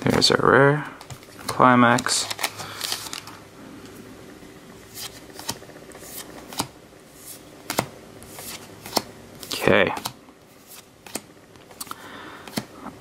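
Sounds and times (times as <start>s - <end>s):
cards flicking: 4.9s - 12.7s.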